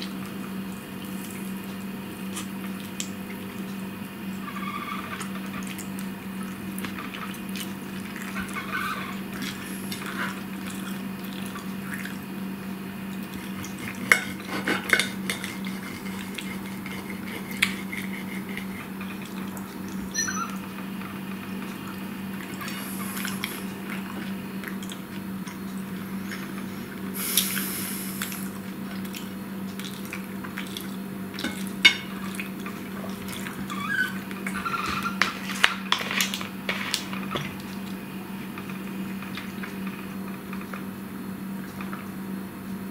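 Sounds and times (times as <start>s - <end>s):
steady low hum: 0.0s - 34.5s
fork scraping against a plate: 13.8s - 18.9s.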